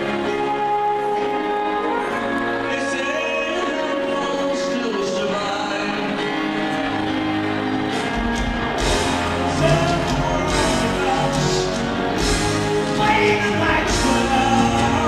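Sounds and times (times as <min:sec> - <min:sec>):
live pop-rock band: 0:00.0 - 0:15.0
piano: 0:00.0 - 0:15.0
man singing: 0:02.6 - 0:06.4, 0:09.4 - 0:15.0.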